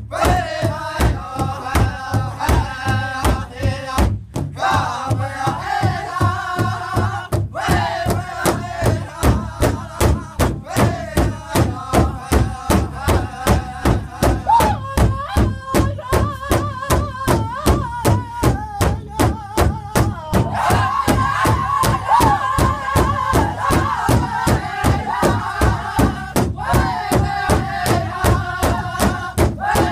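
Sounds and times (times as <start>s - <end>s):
large drum steady beat: 0.0s - 29.9s
men singing high-pitched: 0.0s - 29.9s.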